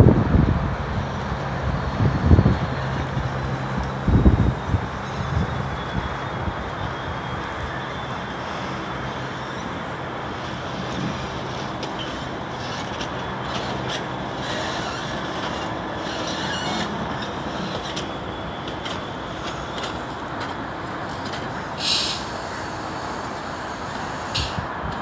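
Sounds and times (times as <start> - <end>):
diesel locomotive engine running: 0.0 - 25.0
wheel and rail noise: 0.0 - 25.0
high hiss: 21.8 - 24.7.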